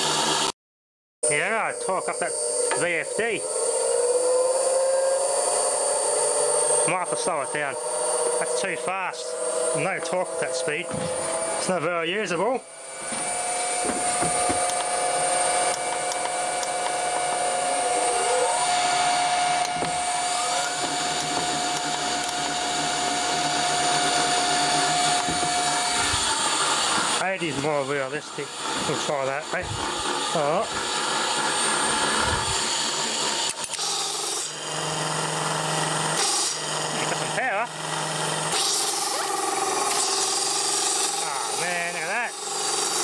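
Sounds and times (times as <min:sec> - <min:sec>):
electric motor high whine: 0:00.0 - 0:00.5, 0:01.2 - 0:43.0.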